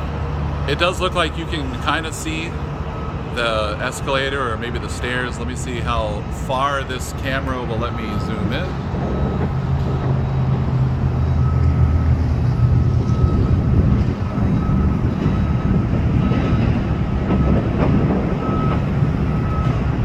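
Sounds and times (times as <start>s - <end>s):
diesel machinery humming: 0.0s - 20.0s
high beeping tone: 7.3s - 9.5s.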